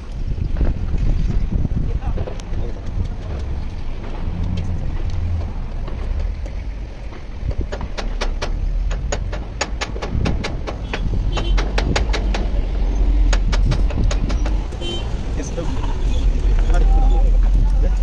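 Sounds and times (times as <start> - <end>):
low rumble: 0.0 - 7.7
sharp taps or knocks: 2.1 - 14.9.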